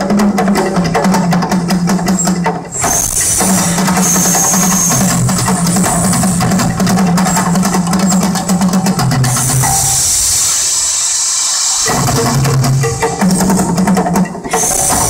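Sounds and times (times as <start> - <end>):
drum-heavy music over loudspeakers: 0.0 - 10.0, 11.8 - 15.0
gas flames hissing: 2.7 - 8.2, 9.2 - 13.8, 14.4 - 15.0.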